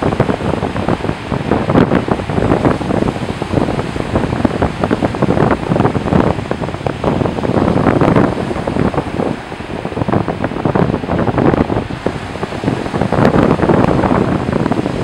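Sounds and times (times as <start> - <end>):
waves breaking on a beach: 0.0 - 15.0
wind buffeting microphone: 0.0 - 15.0.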